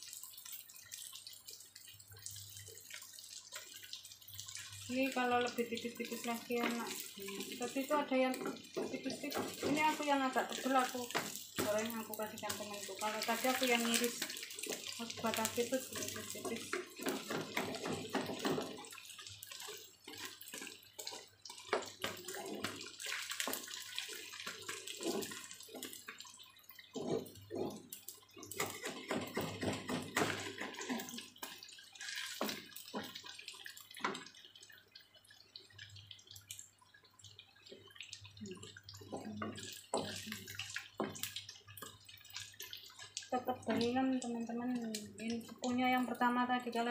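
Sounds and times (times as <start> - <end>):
food frying in oil: 0.0 - 46.9
spatula scraping wok: 22.1 - 22.8, 24.5 - 25.9, 26.9 - 27.9.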